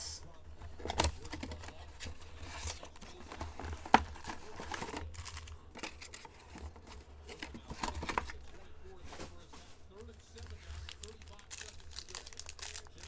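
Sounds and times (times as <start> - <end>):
plastic wrapping crinkling and tearing: 1.0 - 6.3, 9.9 - 13.0.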